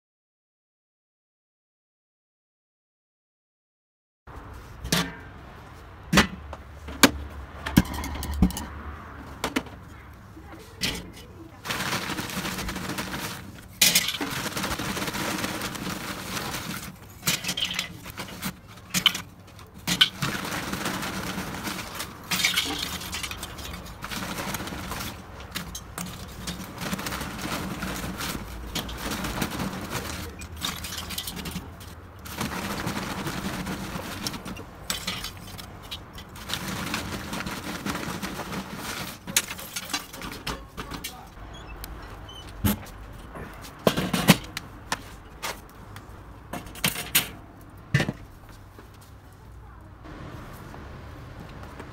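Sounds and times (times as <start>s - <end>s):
charcoal clinking into metal dome: 11.7s - 41.2s.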